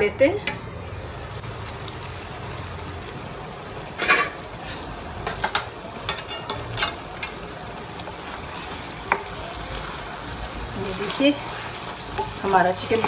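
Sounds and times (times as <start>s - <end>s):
stew sizzling in a pan: 0.7s - 13.0s
utensils clinking against pan: 4.0s - 4.4s, 5.2s - 7.6s.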